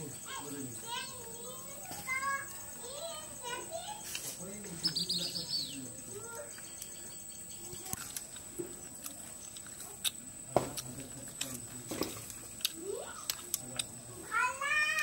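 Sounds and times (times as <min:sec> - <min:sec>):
man chewing food: 0:08.0 - 0:11.6.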